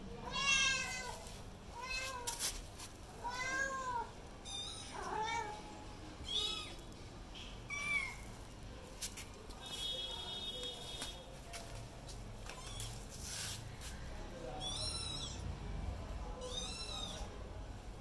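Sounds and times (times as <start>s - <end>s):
kitten meowing: 6.3s - 6.8s, 14.6s - 15.4s, 16.4s - 17.3s.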